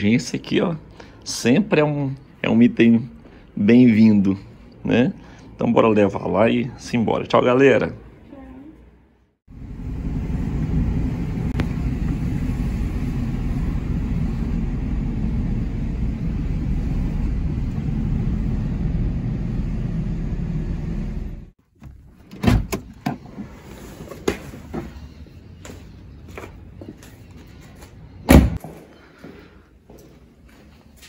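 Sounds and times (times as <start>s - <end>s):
car engine and tyre drone: 9.5s - 21.5s.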